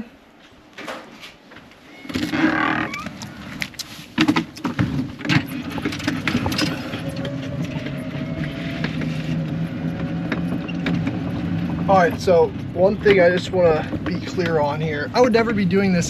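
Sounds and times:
knocks and clatters: 4.2 - 15.8
golf cart humming: 4.5 - 16.0.

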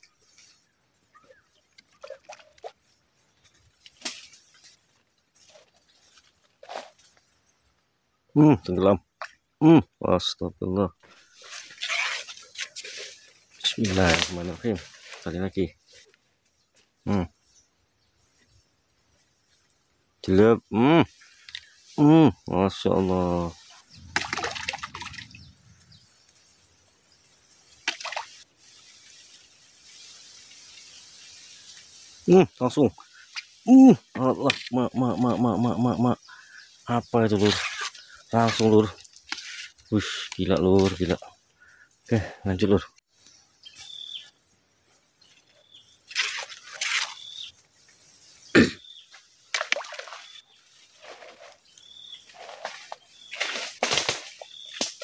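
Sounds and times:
handling and rustling: 1.2 - 7.4, 11.0 - 16.5
splash on water: 23.8 - 25.4, 27.7 - 31.0, 46.1 - 47.4, 49.4 - 50.4
fish splashing in water: 24.0 - 25.4, 27.8 - 28.5, 49.5 - 50.4.

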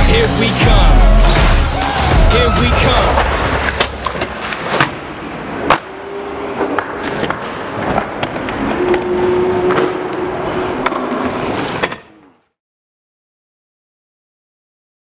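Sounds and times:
skate wheels clacking and grinding: 2.3 - 12.4
inline skates rolling on concrete: 6.5 - 12.3.

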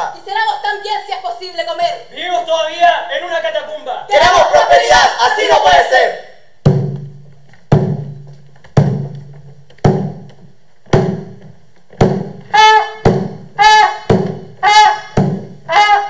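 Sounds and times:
drum beating slowly: 6.6 - 15.8
brass instrument short notes: 12.5 - 16.0.

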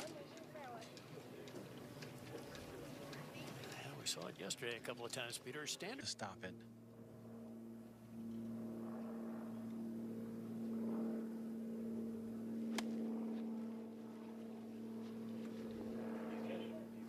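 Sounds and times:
steady motor hum: 0.0 - 17.0
golf club hitting ball: 12.7 - 13.0.

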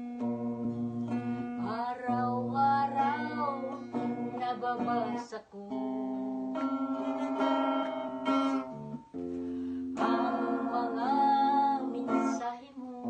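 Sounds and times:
electric guitar strummed: 0.0 - 12.4
woman singing: 1.4 - 8.1, 9.9 - 13.0.

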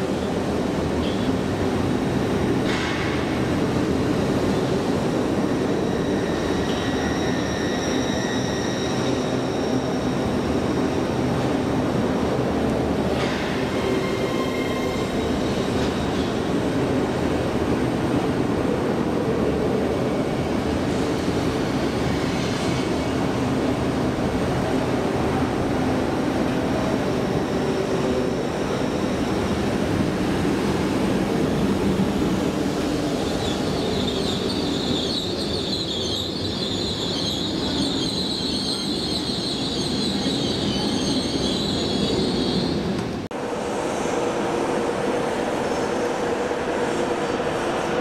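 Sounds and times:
high-pitched wheel squeal: 5.8 - 10.2, 33.4 - 42.8.

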